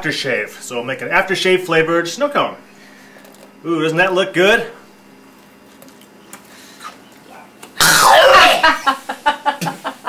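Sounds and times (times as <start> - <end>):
man sputtering and spitting: 7.8 - 8.6
man gagging and coughing: 7.8 - 8.8.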